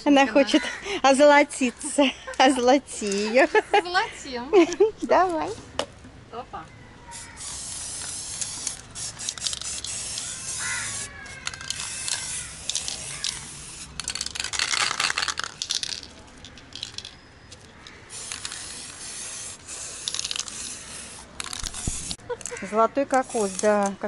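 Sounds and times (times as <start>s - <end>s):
spray paint can hissing: 7.1s - 17.2s, 18.1s - 24.0s.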